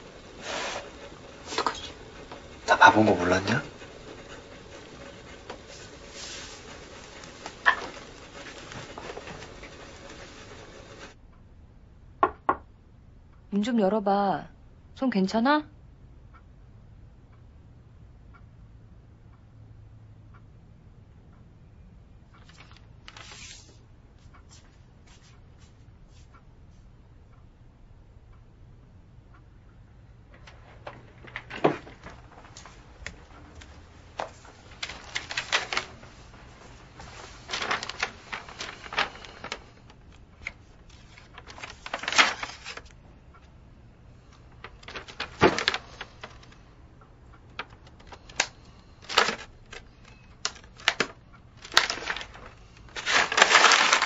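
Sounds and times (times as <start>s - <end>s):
paper rustling and crinkling: 0.0s - 11.2s, 22.4s - 23.8s, 30.3s - 43.0s, 44.3s - 46.7s, 47.5s - 54.0s.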